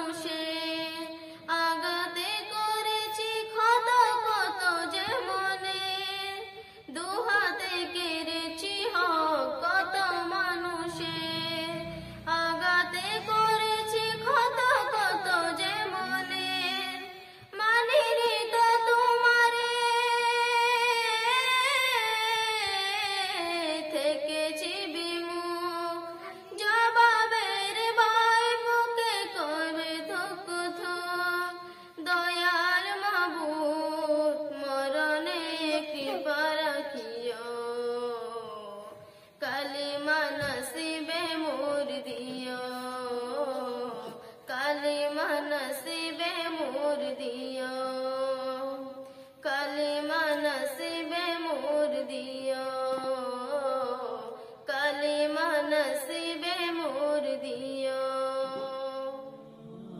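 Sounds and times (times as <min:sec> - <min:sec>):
girl singing into a microphone: 0:00.0 - 0:59.5
singer breathing: 0:06.5 - 0:06.9, 0:17.1 - 0:17.6, 0:31.6 - 0:32.0, 0:38.9 - 0:39.4, 0:44.1 - 0:44.5, 0:49.0 - 0:49.5, 0:54.4 - 0:54.6.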